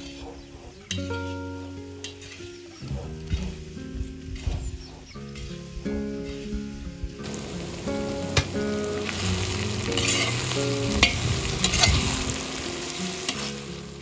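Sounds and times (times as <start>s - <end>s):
food sizzling in a pot: 5.4s - 14.0s.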